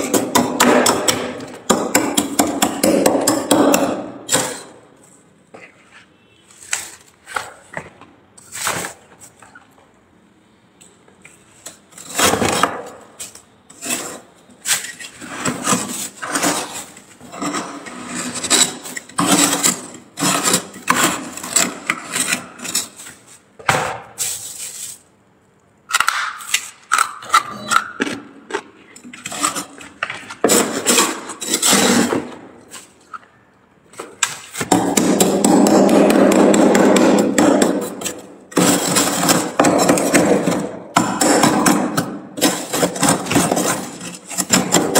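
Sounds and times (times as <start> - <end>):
metal spoon scraping frost: 11.6 - 23.5, 24.2 - 25.1, 29.1 - 33.0, 42.4 - 44.9.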